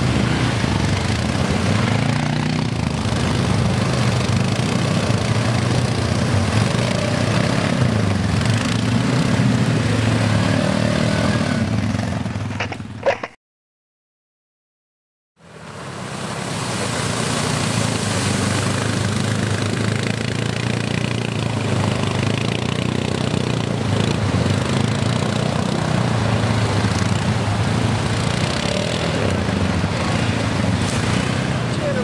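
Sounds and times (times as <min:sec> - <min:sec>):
quad bike engine running: 0:00.0 - 0:13.3, 0:16.8 - 0:32.0
water splashing: 0:15.5 - 0:32.0.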